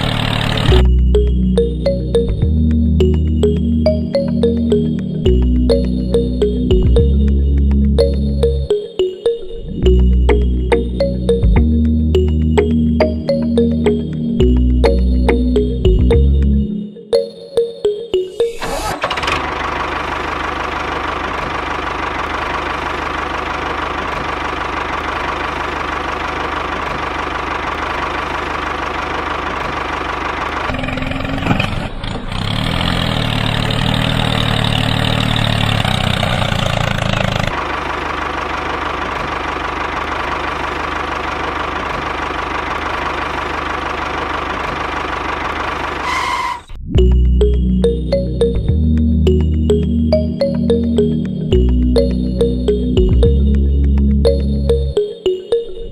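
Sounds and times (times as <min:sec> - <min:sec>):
tractor engine running: 0:00.0 - 0:17.3, 0:18.6 - 0:55.1
music: 0:00.7 - 0:18.8, 0:46.8 - 0:55.9.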